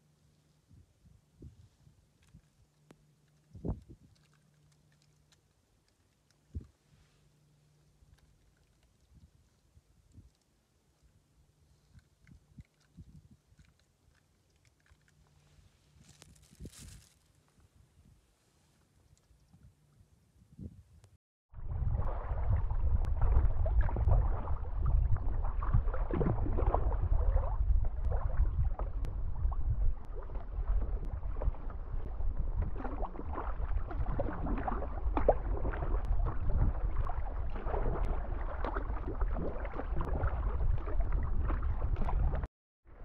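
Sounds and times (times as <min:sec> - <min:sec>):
wind rumble on microphone: 0:00.6 - 0:02.6, 0:03.5 - 0:04.2, 0:09.0 - 0:10.4, 0:11.9 - 0:13.6, 0:15.9 - 0:18.3, 0:19.4 - 0:43.0
water lapping around kayak: 0:11.0 - 0:17.1, 0:21.6 - 0:43.0
paddle splashes: 0:21.6 - 0:42.5.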